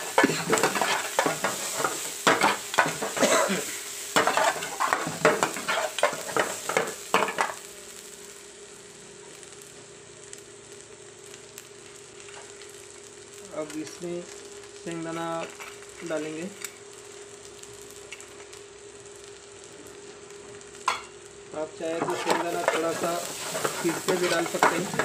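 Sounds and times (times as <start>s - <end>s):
metal ladle scraping in a pan: 0.0s - 3.2s, 4.2s - 6.8s, 22.0s - 25.0s
oil sizzling: 0.0s - 25.0s.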